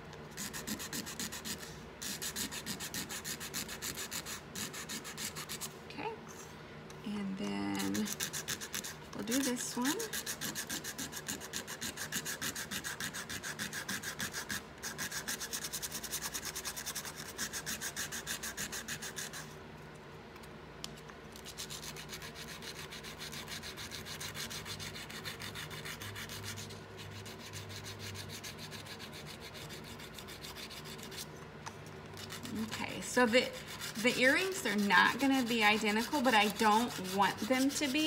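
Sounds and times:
sandpaper rubbing on tin: 7.8 - 19.4, 32.2 - 38.0.

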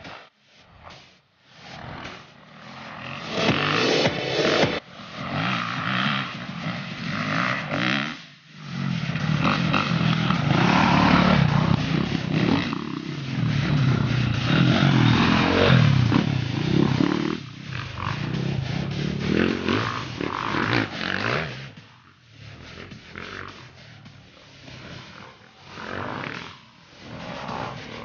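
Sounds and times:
dirt bike engine revving past: 1.8 - 21.7.

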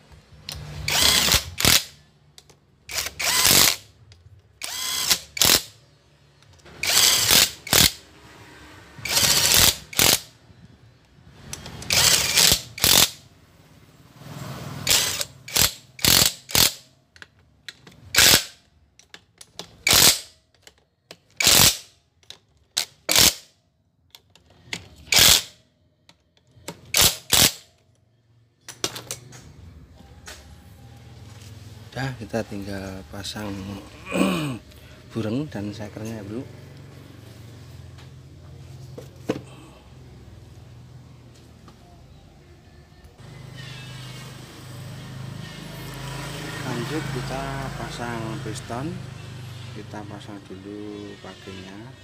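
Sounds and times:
cordless power driver bursts: 0.6 - 2.0, 2.9 - 3.8, 4.6 - 5.7, 6.7 - 8.0, 9.0 - 10.3, 11.8 - 13.2, 14.8 - 16.8, 19.8 - 20.2.

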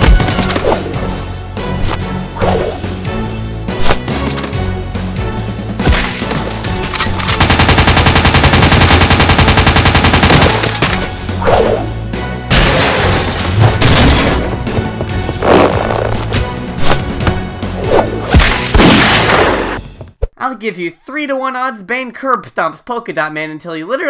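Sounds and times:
background music: 0.0 - 20.8
submachine gun automatic fire: 7.1 - 10.8.

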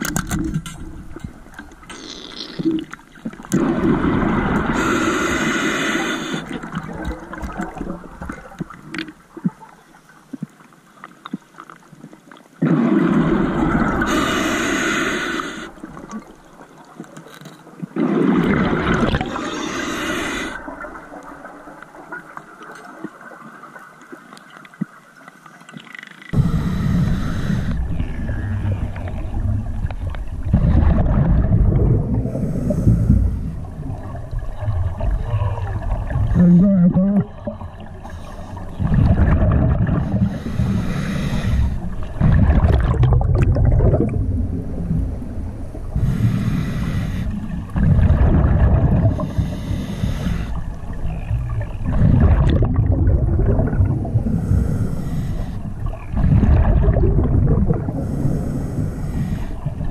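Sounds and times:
exhale bubbling rumble: 2.0 - 5.0, 18.0 - 21.6, 26.3 - 59.9
regulator inhale hiss: 4.6 - 6.6, 14.0 - 15.8, 19.4 - 20.7, 26.4 - 28.3, 32.3 - 33.7, 40.0 - 42.0, 45.9 - 47.6, 49.1 - 50.8, 54.2 - 55.8, 58.0 - 59.8.

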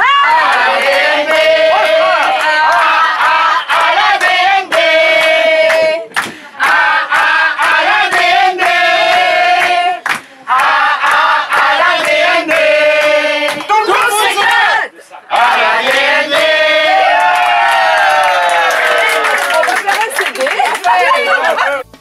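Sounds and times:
group of people singing: 0.0 - 17.2
hands clapping to the beat: 0.2 - 14.1, 15.3 - 21.8.

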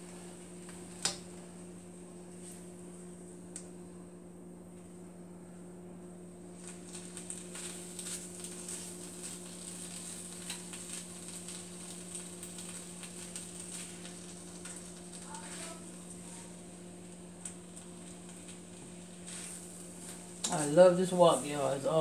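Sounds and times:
steady low hum: 0.0 - 22.0
food sizzling in a wok: 6.5 - 22.0.

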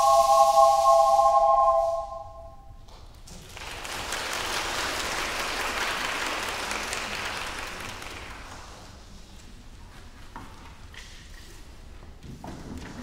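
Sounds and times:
ensemble held chord: 0.0 - 2.7
audience applauding: 3.4 - 8.7.

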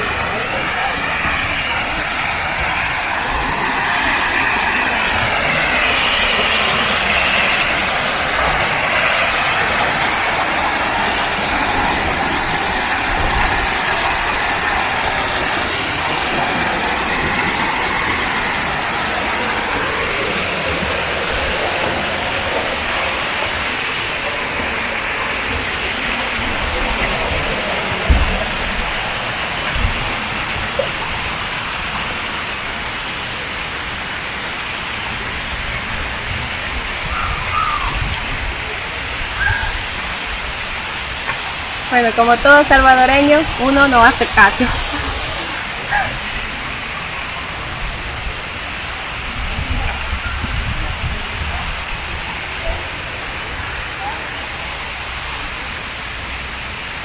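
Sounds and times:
water pouring into pool: 0.0 - 42.2.

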